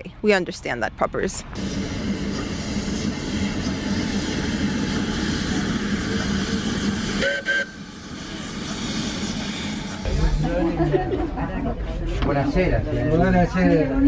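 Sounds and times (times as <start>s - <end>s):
steam locomotive hissing: 1.6s - 10.9s.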